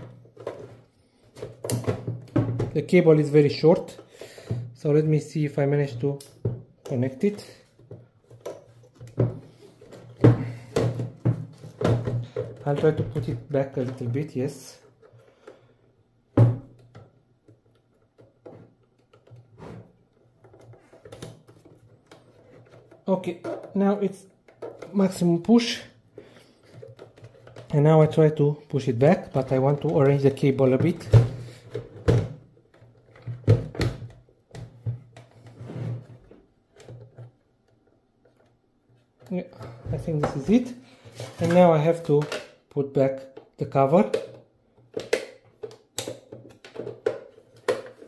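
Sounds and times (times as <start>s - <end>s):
soft handling noises: 34.6s - 48.0s.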